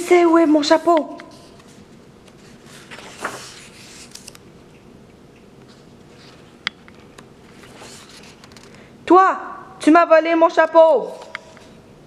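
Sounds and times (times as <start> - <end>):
paper rustling: 0.3 - 4.4, 5.6 - 6.6, 7.4 - 8.8
paper page turning swish: 2.4 - 4.4, 7.5 - 8.4.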